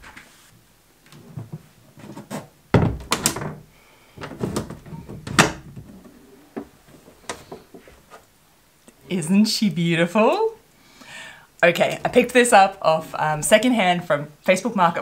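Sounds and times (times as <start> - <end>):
hard case knocking on wooden table: 2.8 - 3.2.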